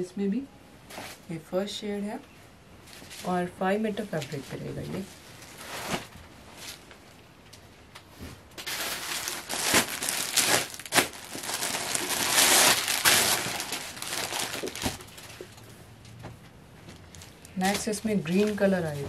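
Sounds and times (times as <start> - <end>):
plastic bag crinkling: 8.6 - 15.6.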